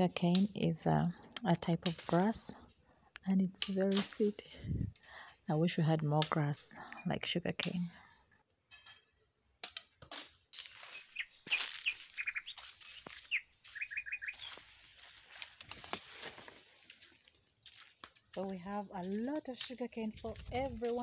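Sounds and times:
small birds chirping: 10.4s - 15.6s.

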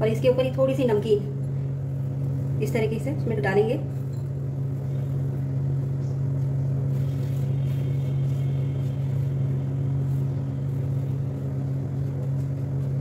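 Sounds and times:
machine humming: 0.0s - 13.0s
light rustles of sprinkling: 5.0s - 13.0s.

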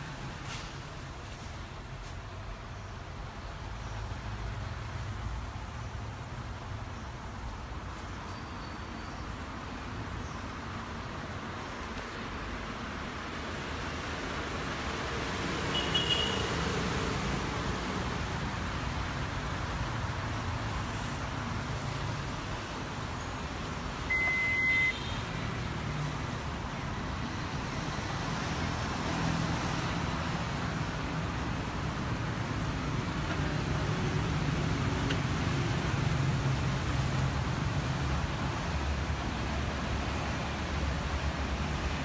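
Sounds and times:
short high electronic beep: 24.1s - 25.0s.

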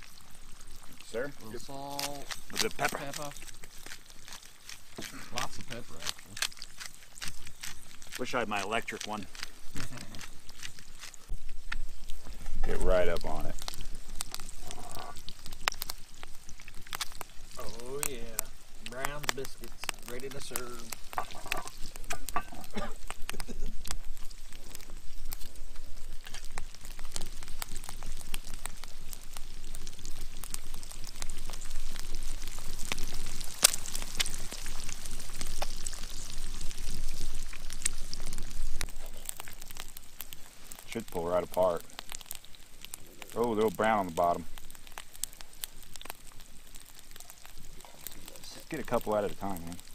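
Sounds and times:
campfire popping: 0.0s - 49.9s
eggs sizzling in skillet: 0.0s - 49.9s
pepper mill grinding: 1.6s - 11.9s.

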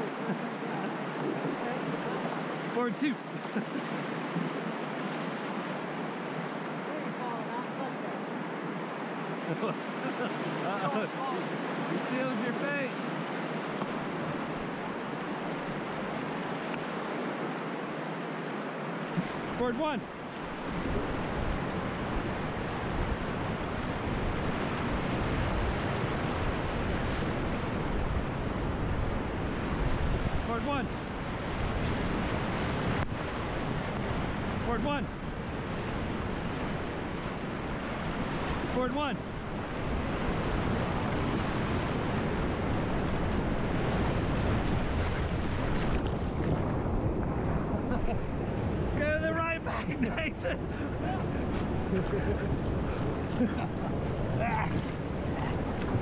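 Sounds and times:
wind buffeting microphone: 0.0s - 2.7s, 19.0s - 56.0s
whitewater rushing: 0.0s - 56.0s.

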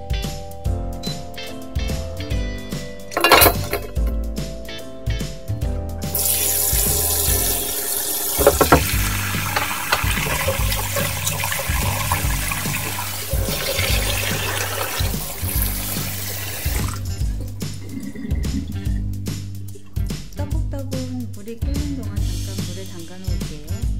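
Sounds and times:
tap water running into metal bowl: 6.1s - 18.3s.

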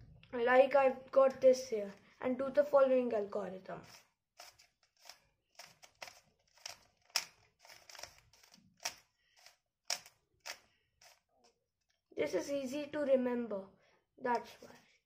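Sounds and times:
plastic puzzle cube clicking: 4.4s - 11.2s.

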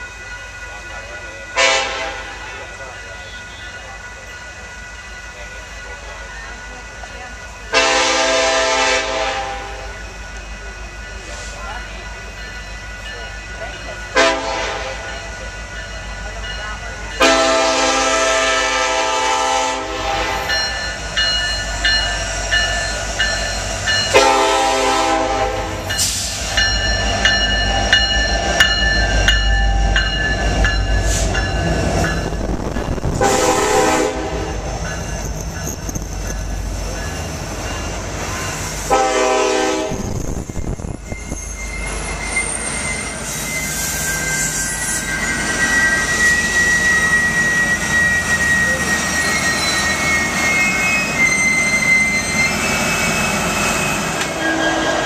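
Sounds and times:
crossing bell ringing: 0.0s - 55.0s
deep locomotive engine rumble: 0.0s - 55.0s
train cars rolling past: 0.0s - 55.0s
locomotive air horn blasts: 1.6s - 2.3s, 7.7s - 9.9s, 14.2s - 15.0s, 17.2s - 20.5s, 24.1s - 26.0s, 33.2s - 34.6s, 38.9s - 40.0s, 54.3s - 55.0s
high wheel squeal: 40.0s - 55.0s.

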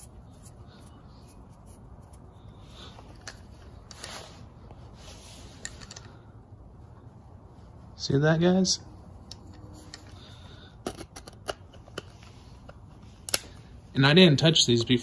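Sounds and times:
light clicks and handling: 5.5s - 6.3s, 9.2s - 13.6s.

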